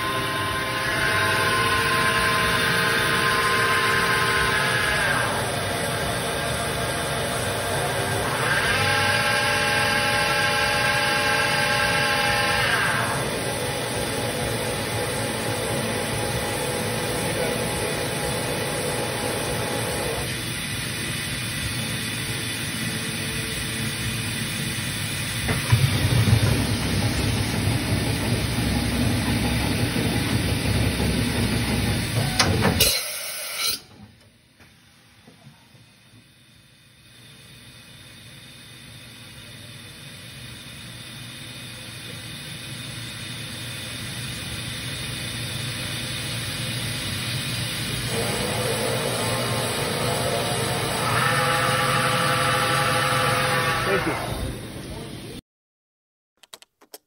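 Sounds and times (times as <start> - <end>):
machining center whining: 0.0 - 32.8, 45.0 - 55.4
machine hiss and running noise: 0.0 - 55.4.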